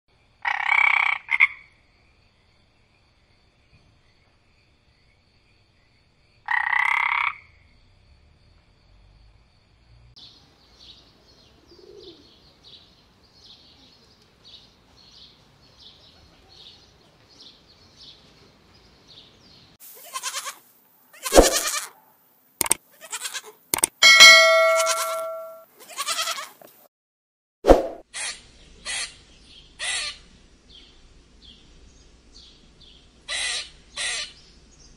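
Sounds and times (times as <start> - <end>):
frog croaking: 0.4 - 1.7, 6.5 - 7.6
animal bleat: 20.0 - 22.0, 22.9 - 23.6, 25.8 - 26.6
faint high chirps: 24.0 - 25.6.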